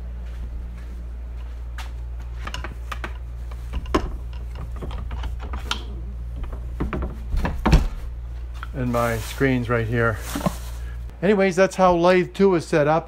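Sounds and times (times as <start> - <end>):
steady low hum: 0.0 - 13.0
metal clicks and clunks: 2.4 - 7.7.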